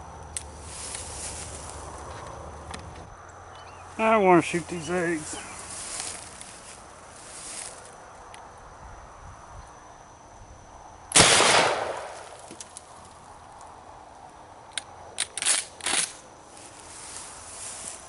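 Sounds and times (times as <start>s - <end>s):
shotgun blast: 11.1s - 12.4s.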